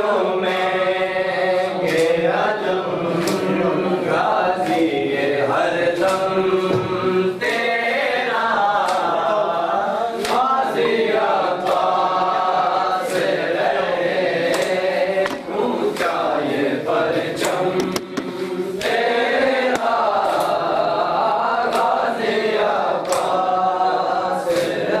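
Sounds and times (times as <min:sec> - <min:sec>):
men chanting in chorus: 0:00.0 - 0:25.0
hands slapping chests: 0:01.8 - 0:02.2, 0:03.2 - 0:03.6, 0:06.0 - 0:06.3, 0:14.4 - 0:16.2, 0:17.4 - 0:20.7, 0:23.0 - 0:23.5.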